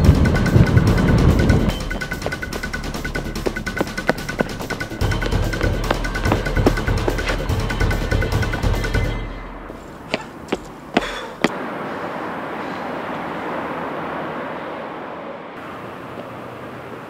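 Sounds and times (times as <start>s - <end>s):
soundtrack music: 0.0s - 9.7s
outdoor background hiss: 9.4s - 17.0s.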